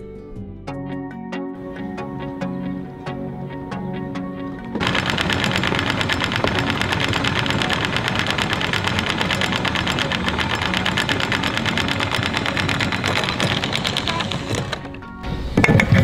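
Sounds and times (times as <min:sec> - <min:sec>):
boat engine knocking rhythmically: 0:04.7 - 0:15.0.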